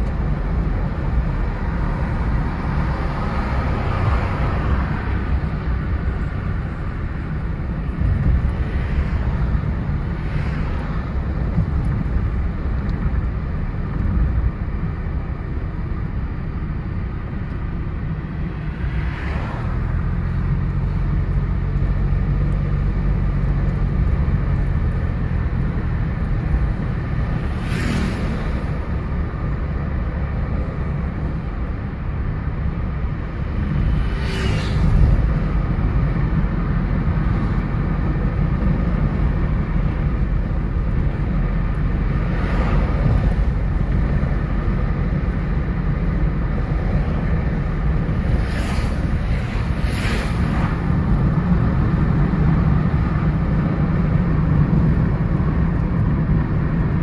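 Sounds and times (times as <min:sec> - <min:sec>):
car engine and tyres rumbling: 0:00.0 - 0:57.0
brief whooshes: 0:48.4 - 0:50.8.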